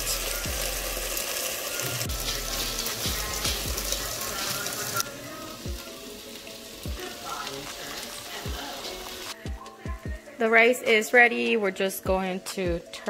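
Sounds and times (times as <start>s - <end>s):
rice and water boiling: 0.0s - 9.4s.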